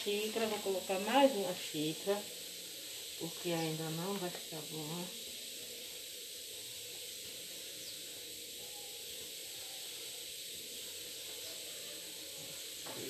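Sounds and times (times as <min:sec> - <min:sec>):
room tone hiss: 0:00.0 - 0:13.0.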